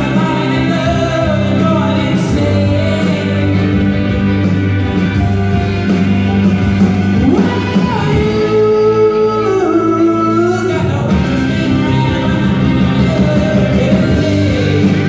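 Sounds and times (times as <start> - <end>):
person singing: 0.0 - 4.5, 5.1 - 15.0
live rock band playing: 0.0 - 15.0.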